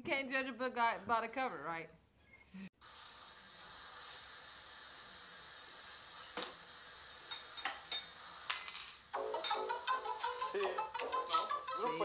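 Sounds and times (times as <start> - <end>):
dishes clinking: 7.3 - 9.7.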